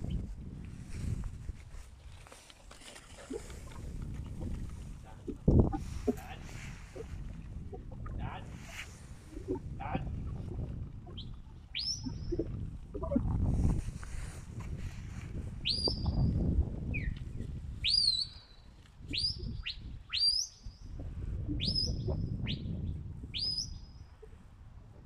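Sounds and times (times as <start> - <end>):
wind rumble on microphone: 0.0 - 25.0
sharp whistles: 15.6 - 16.3, 17.8 - 18.5, 19.1 - 20.6, 21.6 - 22.7, 23.4 - 23.8.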